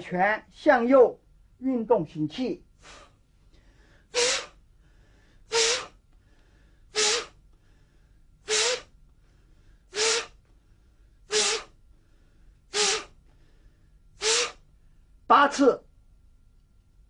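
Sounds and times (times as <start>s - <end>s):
man's sharp forceful breaths: 2.8s - 14.9s.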